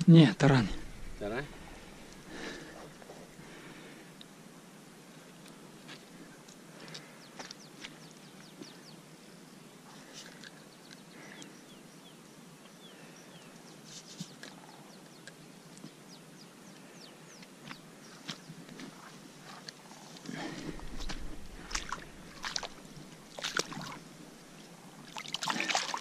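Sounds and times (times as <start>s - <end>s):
small birds chirping: 6.2s - 19.2s, 19.8s - 25.1s.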